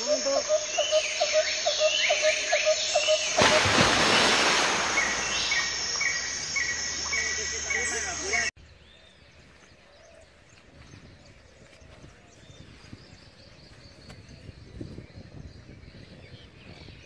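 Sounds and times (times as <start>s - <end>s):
high insect buzz: 0.0s - 8.5s
bird chirping: 0.0s - 17.0s.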